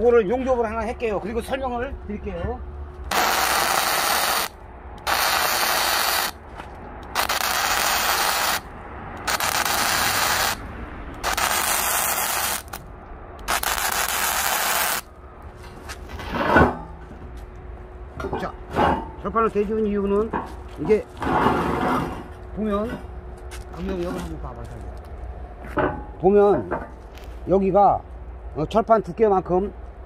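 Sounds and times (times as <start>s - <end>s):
welding arc crackling and hissing: 3.1s - 6.4s, 7.0s - 10.6s, 11.2s - 12.8s, 13.4s - 15.1s.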